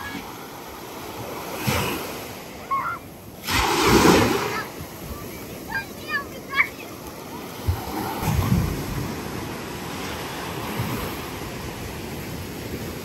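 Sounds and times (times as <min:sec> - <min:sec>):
sea surf washing onto beach: 0:00.0 - 0:13.0
wind bumps on microphone: 0:07.6 - 0:09.9.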